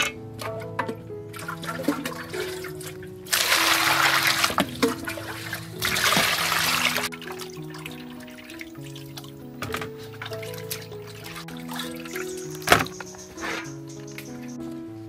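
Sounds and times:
water pouring into metal bowl: 1.4s - 9.4s.

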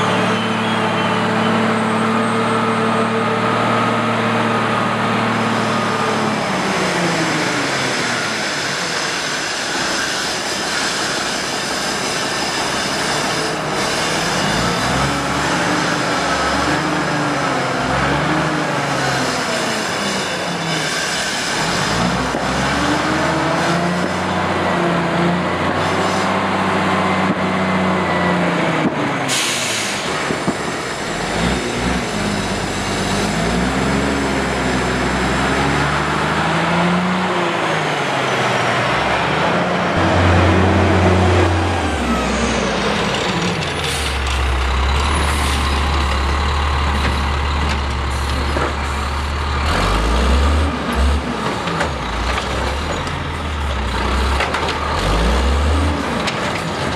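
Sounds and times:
truck diesel engine pulling away: 0.0s - 10.6s, 13.1s - 56.9s
air brake hiss: 29.3s - 31.0s
truck engine idling: 38.7s - 50.0s.

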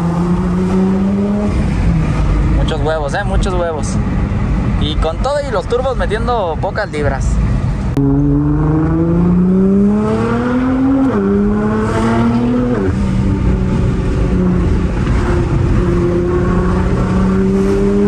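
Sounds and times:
car engine accelerating hard: 7.9s - 18.0s.

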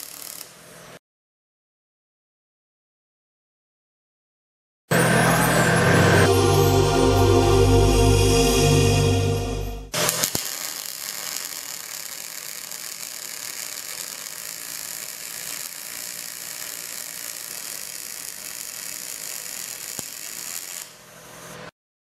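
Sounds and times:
welding arc crackling sizzle: 0.0s - 1.0s, 9.9s - 21.7s.

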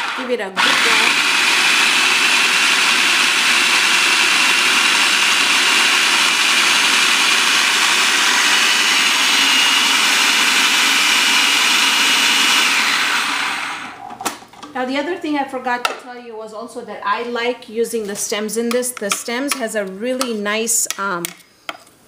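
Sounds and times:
food processor motor whining: 0.0s - 14.1s.

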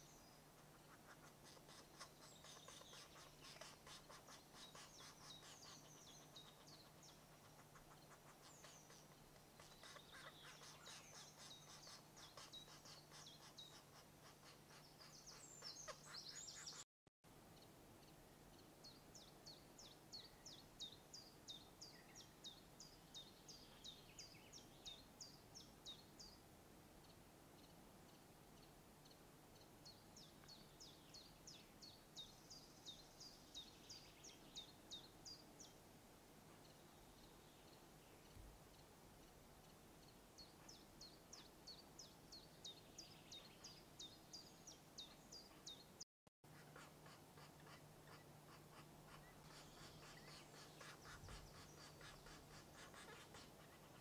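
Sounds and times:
woodpecker nestlings begging: 0.0s - 16.8s, 46.5s - 54.0s.

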